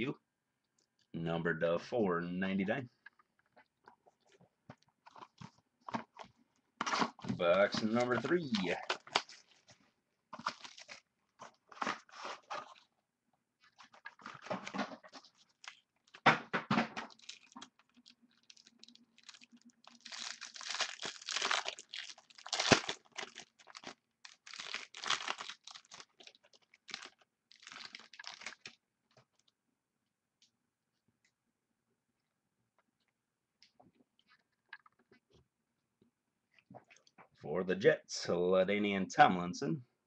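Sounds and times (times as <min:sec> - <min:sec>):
plastic wrapping crinkling and tearing: 0:05.1 - 0:09.8, 0:10.4 - 0:12.9, 0:13.6 - 0:16.3, 0:17.0 - 0:29.5.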